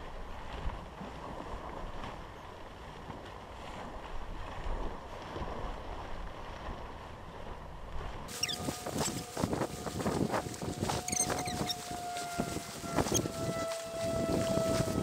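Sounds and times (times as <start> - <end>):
wind buffeting microphone: 3.7 - 15.0
short tones: 8.3 - 9.3, 10.8 - 13.8
tent fabric rustling: 8.3 - 15.0.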